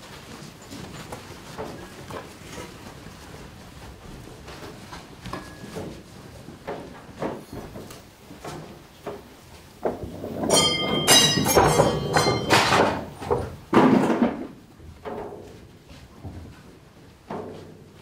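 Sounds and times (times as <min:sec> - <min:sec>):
knocking and scraping: 0:03.9 - 0:18.0
metallic ringing: 0:10.5 - 0:12.9.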